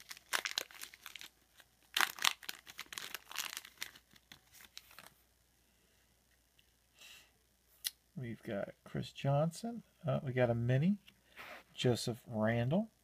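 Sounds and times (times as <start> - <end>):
foil wrapper crinkling: 0.0 - 5.2.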